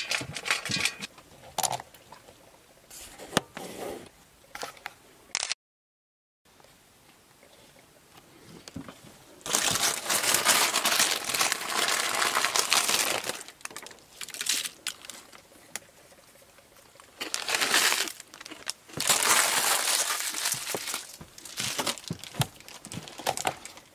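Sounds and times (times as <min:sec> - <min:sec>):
chip bag crinkling: 0:09.4 - 0:15.8, 0:16.9 - 0:23.9.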